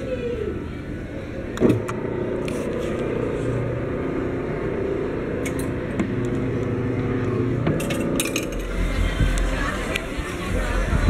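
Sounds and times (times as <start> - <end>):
coin machine motor running: 7.8 - 9.6.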